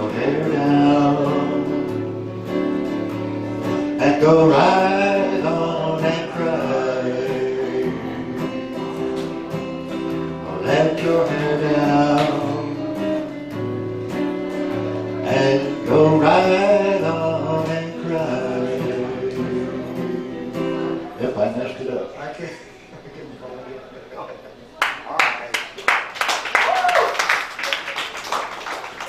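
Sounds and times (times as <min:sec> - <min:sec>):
man singing: 0:00.0 - 0:13.6, 0:14.5 - 0:21.6
strummed acoustic guitar: 0:00.0 - 0:21.8
electric guitar lines: 0:00.0 - 0:24.6.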